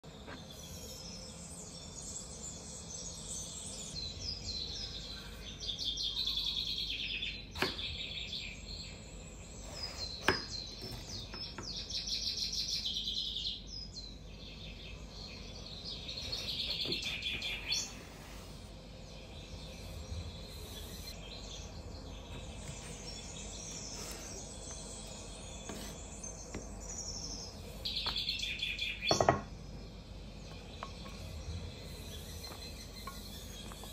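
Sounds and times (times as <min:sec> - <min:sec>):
birds chirping and singing: 0:00.0 - 0:33.9
knocks on wooden cutting board: 0:29.1 - 0:29.5.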